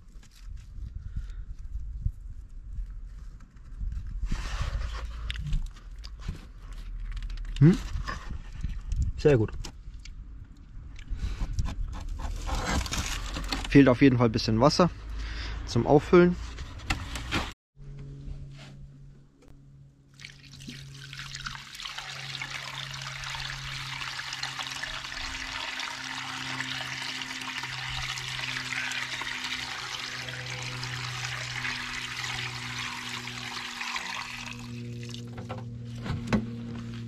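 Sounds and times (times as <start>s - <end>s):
hose water splashing into pond: 20.1s - 35.4s.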